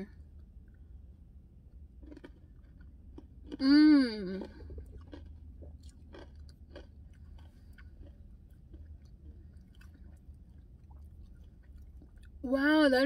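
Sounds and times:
faint chewing: 2.0 - 12.4.

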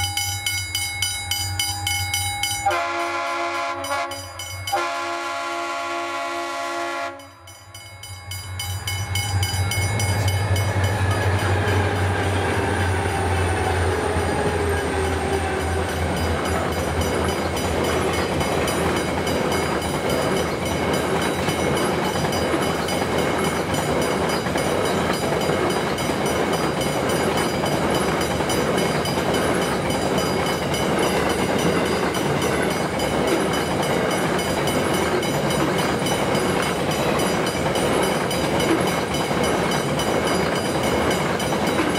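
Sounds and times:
crossing warning bell ringing: 0.0 - 41.9
wagons rattling on rails: 8.0 - 41.9
diesel locomotive rumble: 8.6 - 41.9.

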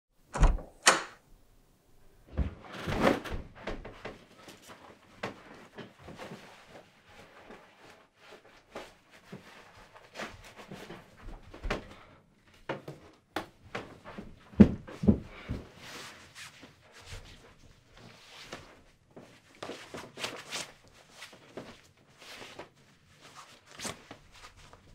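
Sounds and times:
door opening and shutting: 0.3 - 1.2
clothes rustling: 2.3 - 24.9.

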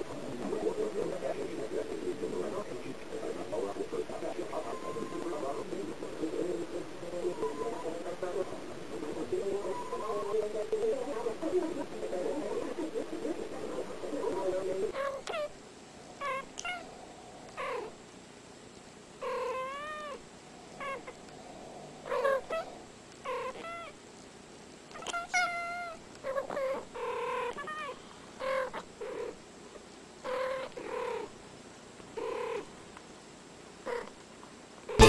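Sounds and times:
cats chirping meows and trills: 4.5 - 5.6, 7.1 - 8.3, 9.5 - 10.4, 14.9 - 15.6, 16.2 - 16.9, 19.2 - 20.2, 20.8 - 21.2, 22.0 - 24.0, 24.9 - 29.4, 30.3 - 31.3.

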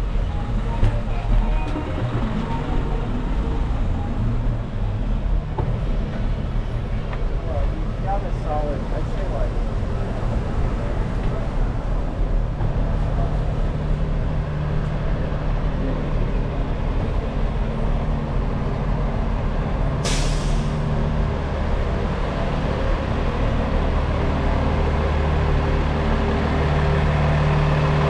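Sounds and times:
diesel trucks humming: 0.0 - 28.0
air brake hiss: 20.0 - 20.8.

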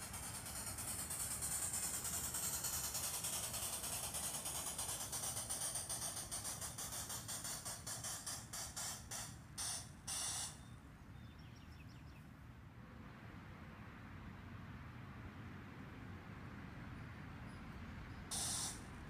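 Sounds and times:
electronic steam locomotive chuffs: 0.0 - 10.6, 18.3 - 19.0.

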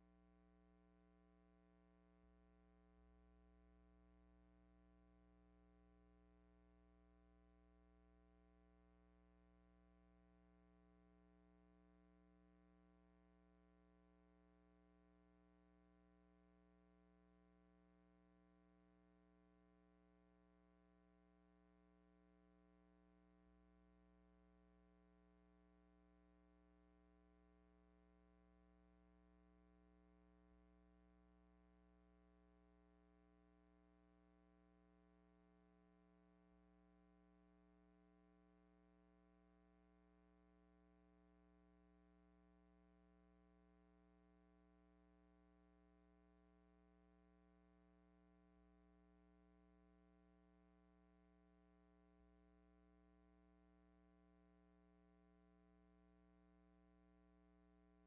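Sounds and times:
faint steady hum: 0.0 - 58.0.

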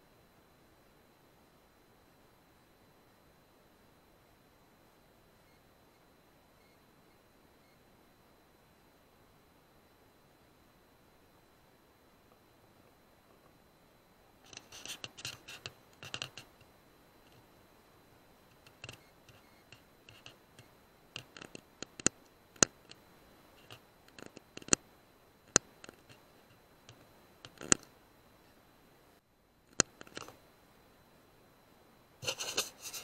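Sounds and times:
sharp irregular clicks: 14.4 - 16.7, 18.5 - 23.0, 23.6 - 24.8, 25.5 - 27.9, 29.7 - 30.4.

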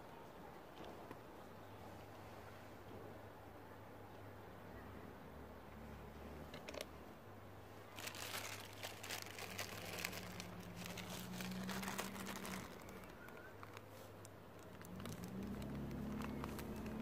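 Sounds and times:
plastic bag crinkling: 7.9 - 17.0.

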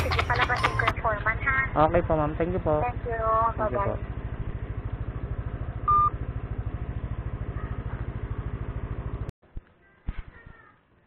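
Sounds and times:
scooter engine idling: 0.0 - 9.3
short electronic beep: 5.9 - 6.1.

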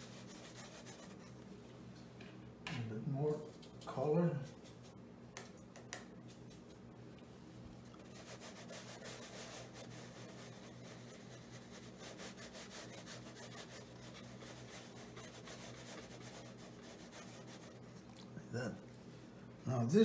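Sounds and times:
brush scratching across paper: 0.0 - 1.4, 7.8 - 18.1.

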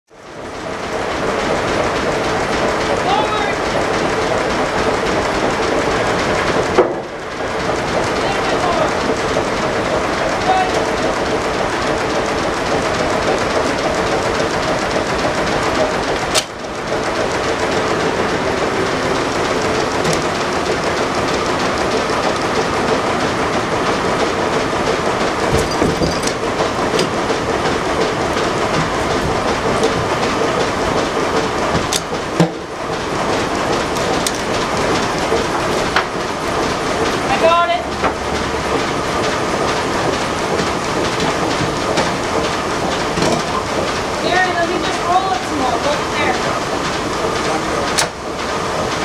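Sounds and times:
sawmill machinery low hum: 0.1 - 49.0
log carriage clattering: 17.0 - 49.0.

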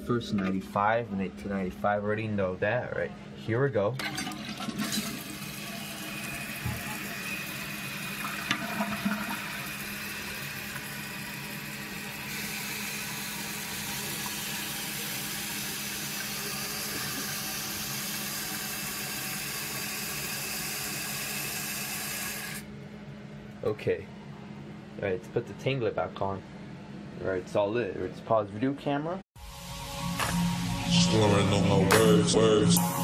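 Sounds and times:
toilet tank refilling hiss: 4.4 - 22.6.

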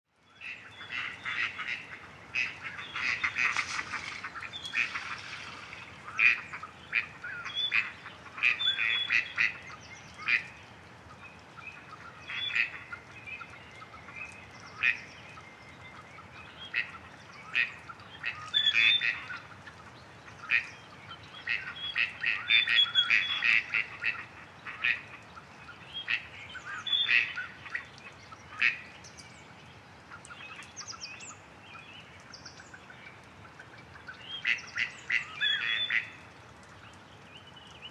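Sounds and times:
ducks quacking nasally: 0.4 - 9.6, 21.5 - 25.2.

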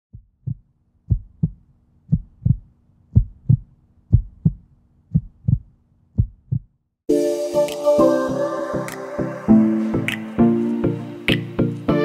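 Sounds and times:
heartbeat thumps: 0.1 - 6.8.

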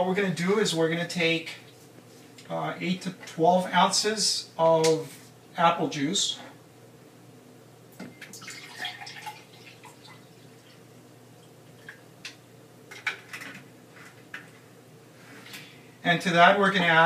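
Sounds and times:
juice pouring into a glass: 8.4 - 10.7.

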